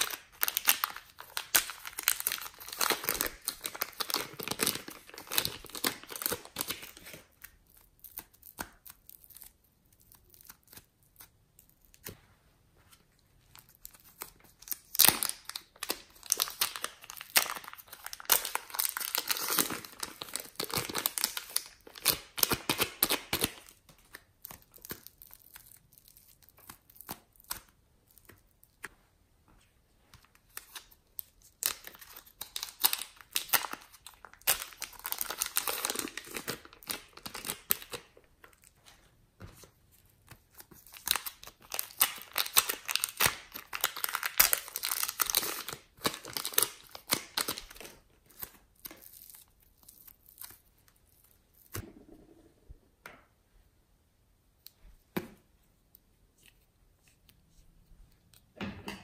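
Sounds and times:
plastic bags crinkling and tearing: 0.0s - 10.8s, 13.6s - 27.6s, 30.5s - 38.8s, 40.6s - 51.8s.

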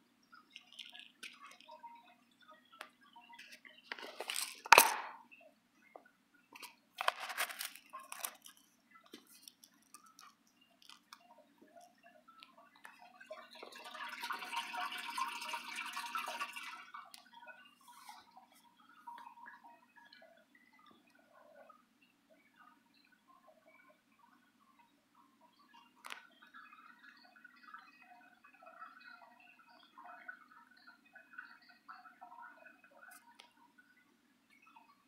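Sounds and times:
bubbling aquarium water: 0.0s - 35.0s
pellets rattling in plastic jar: 4.0s - 5.1s, 7.0s - 8.6s.

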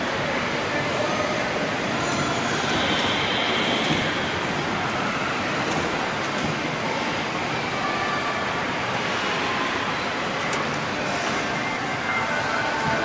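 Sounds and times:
amusement ride noise: 0.0s - 13.0s
crowd noise: 0.0s - 13.0s.

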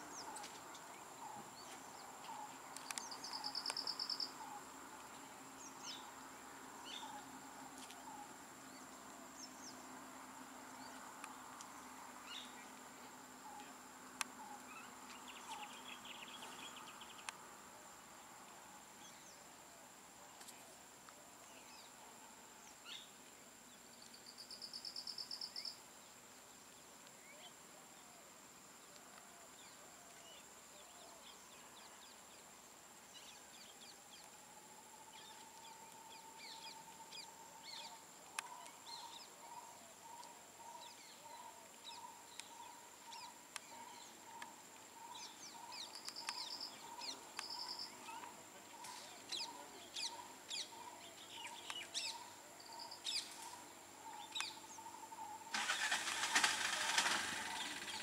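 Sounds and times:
birds chirping: 0.0s - 19.5s, 35.1s - 58.0s.

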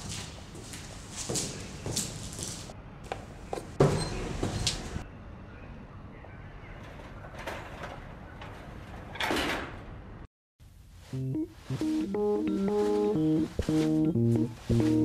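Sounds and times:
sliding elevator doors swishing: 3.3s - 5.0s
keyboard music: 11.1s - 15.0s.

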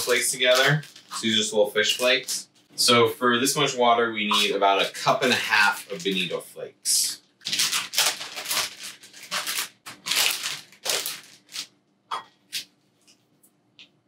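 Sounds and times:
bag crinkling and rustling: 0.0s - 2.4s, 7.4s - 11.7s.

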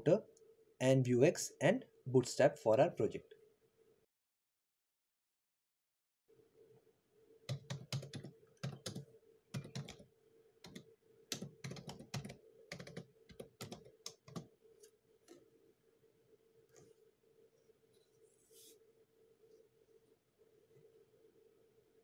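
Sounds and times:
faint steady hum: 0.0s - 4.1s, 6.3s - 22.0s
typing on computer keyboard: 7.5s - 14.5s.

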